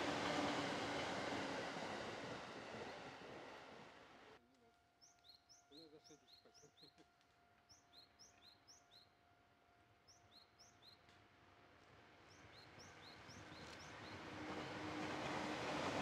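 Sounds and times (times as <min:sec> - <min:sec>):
electric train rushing: 0:00.0 - 0:04.3, 0:13.9 - 0:16.0.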